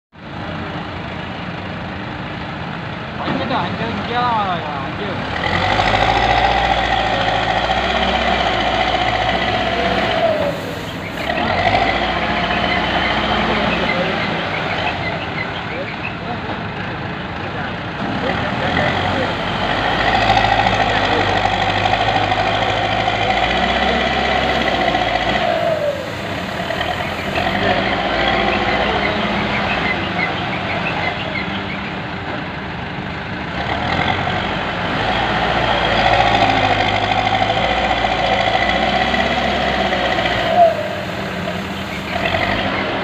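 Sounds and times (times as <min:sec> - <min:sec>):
diesel engine whining under load: 0:00.2 - 0:43.0.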